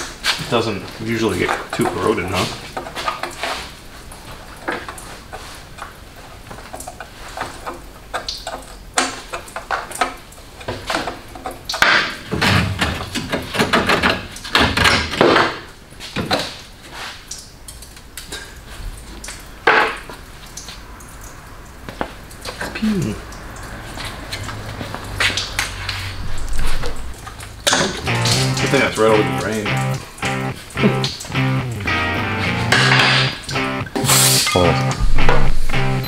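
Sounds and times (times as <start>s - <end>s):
hand tools clanking on metal: 1.2s - 3.4s.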